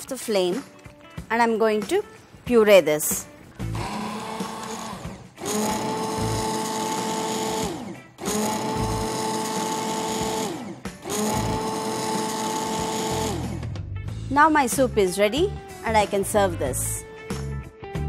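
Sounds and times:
immersion blender whining: 3.6s - 13.7s.

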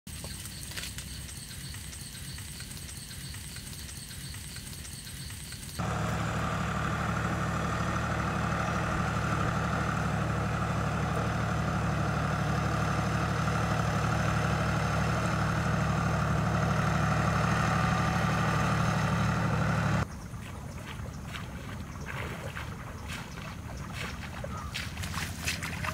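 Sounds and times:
power tiller engine running: 0.1s - 20.1s.

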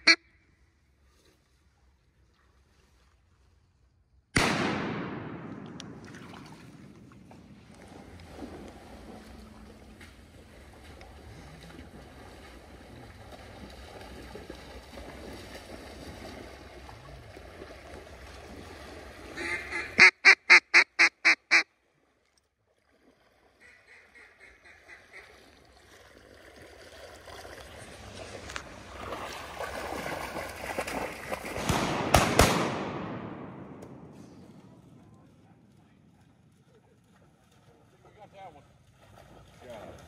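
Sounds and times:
duck quacking: 0.0s - 0.3s, 19.4s - 21.7s, 23.6s - 25.4s
splashing through shallow water: 5.7s - 20.0s, 21.8s - 32.9s, 34.0s - 40.0s.

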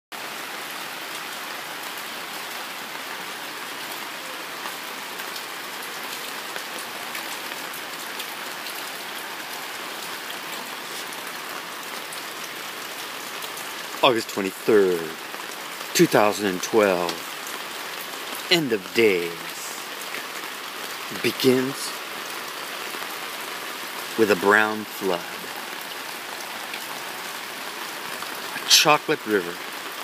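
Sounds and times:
steady rain falling: 0.2s - 30.0s
raindrop ticks: 12.4s - 22.3s.

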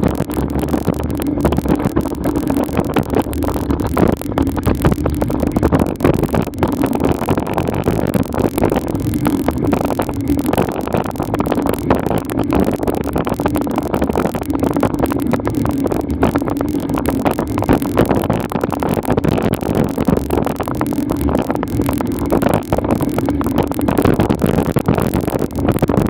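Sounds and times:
dense crackling rattle: 0.0s - 26.0s
low hum: 0.0s - 26.0s
steady rumbling noise: 0.0s - 26.0s.

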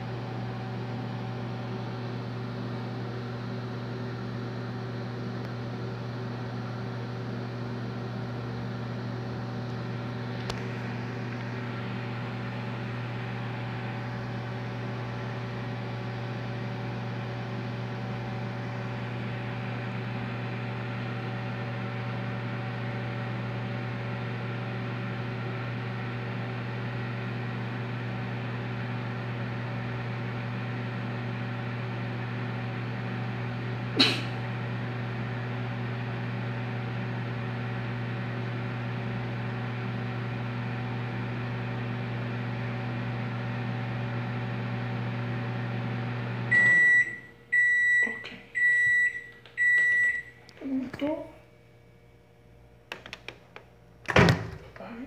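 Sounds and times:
microwave oven humming: 0.0s - 55.0s.

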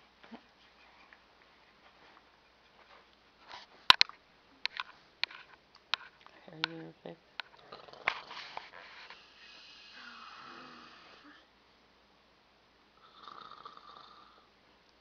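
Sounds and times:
person snoring: 9.2s - 11.5s, 13.0s - 14.5s.

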